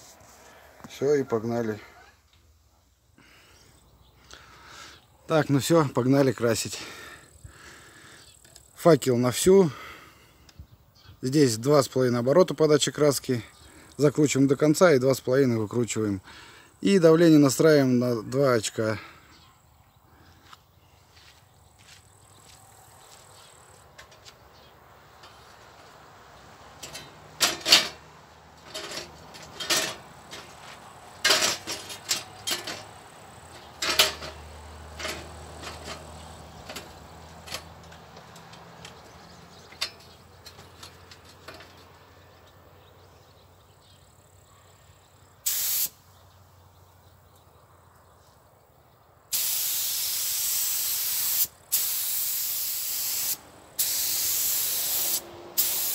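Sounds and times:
spray gun hissing: 45.4 - 46.0, 49.3 - 55.9.

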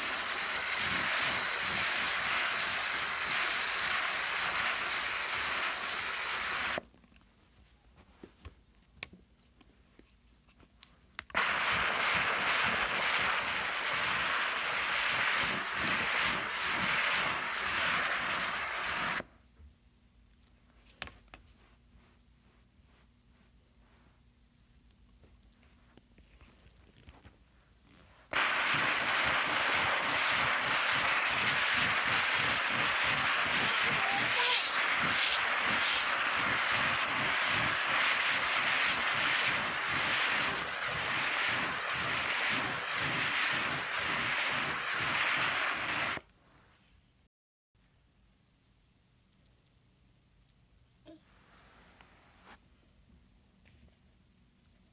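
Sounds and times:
steam cleaner hissing: 0.0 - 6.8, 11.3 - 19.3, 28.3 - 46.2
cloth rubbing on carpet: 21.4 - 24.4.

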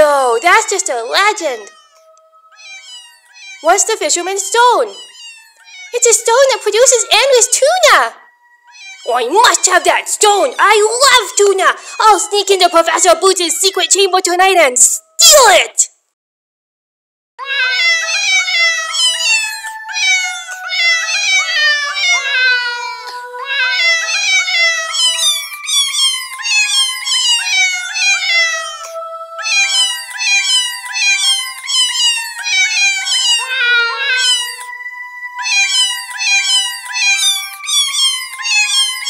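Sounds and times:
meow note music: 0.6 - 7.6, 8.2 - 9.8, 17.4 - 39.0.

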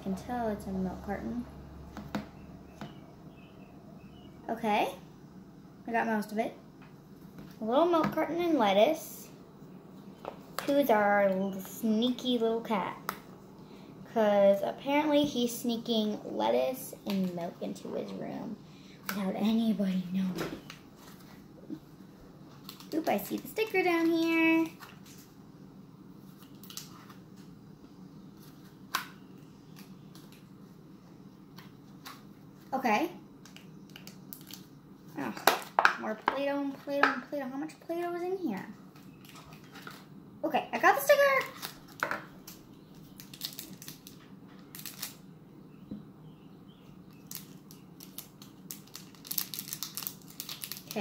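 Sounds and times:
low room hum: 0.0 - 51.0
plastic wrapper crinkling: 33.5 - 34.7, 41.3 - 45.2, 47.1 - 51.0
toy package rustling and clicking: 41.4 - 45.2, 47.2 - 51.0.

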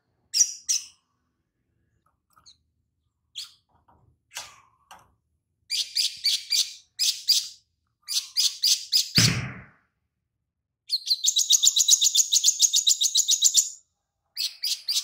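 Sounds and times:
sunbird singing: 10.9 - 13.8.

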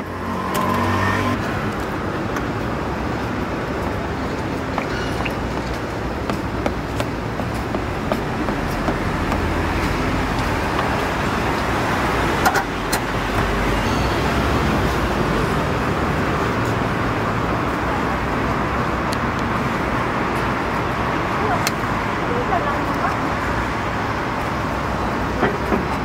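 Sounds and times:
street traffic noise: 0.0 - 26.0.

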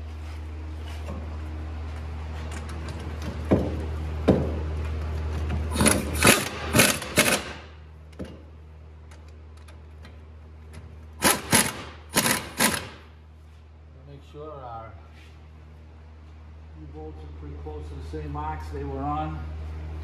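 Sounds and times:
steady low hum: 0.0 - 20.0
power wrench spinning nuts: 5.7 - 7.5, 11.2 - 13.1.

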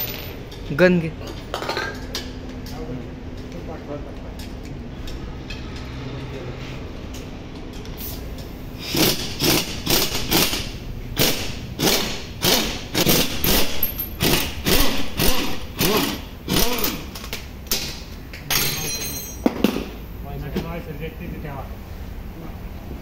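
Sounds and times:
pneumatic impact wrench bursts: 8.0 - 17.2.

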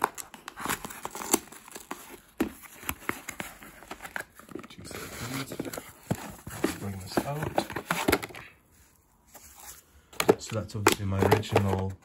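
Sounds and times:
cardboard crackling and tapping: 0.0 - 8.5, 10.1 - 12.0
cardboard flaps rustling: 0.0 - 8.5.

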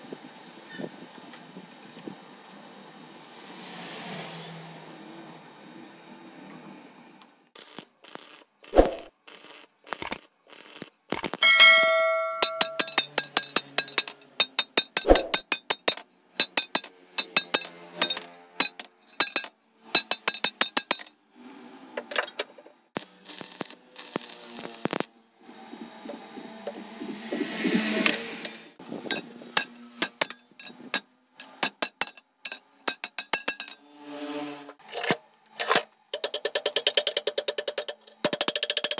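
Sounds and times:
hammer striking steel crowbar: 11.4 - 19.4.

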